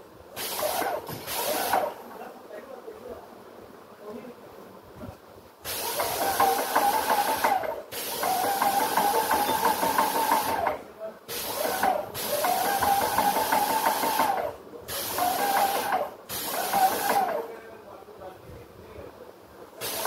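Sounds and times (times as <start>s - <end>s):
spray hiss: 0.3s - 2.0s, 5.6s - 10.7s, 11.3s - 17.5s, 19.8s - 20.0s
paint sprayer pump pulsing: 0.4s - 2.0s, 5.7s - 17.5s.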